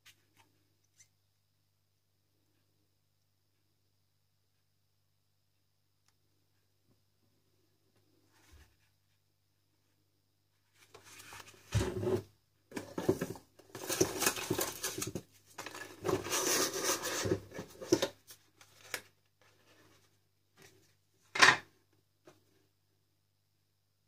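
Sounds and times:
cardboard packaging rustling: 0:10.8 - 0:20.2.

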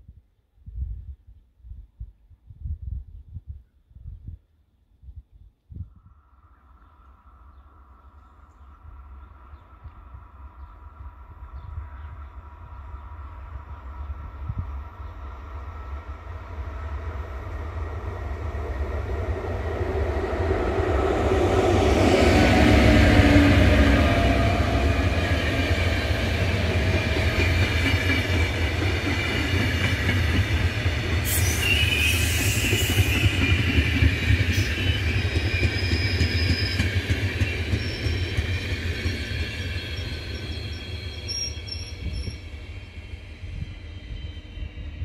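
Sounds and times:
train wheels rolling on rails: 0:13.0 - 0:45.0
high wheel squeal: 0:31.3 - 0:42.5.

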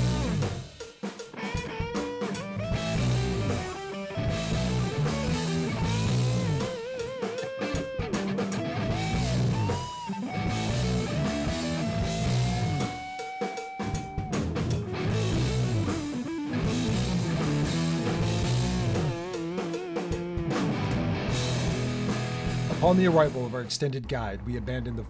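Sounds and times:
song with guitar and drums: 0:00.0 - 0:23.7.

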